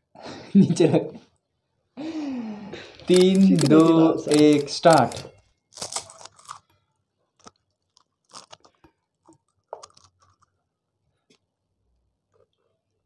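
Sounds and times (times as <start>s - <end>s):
crisp shells cracking: 3.0s - 6.8s, 7.4s - 10.5s.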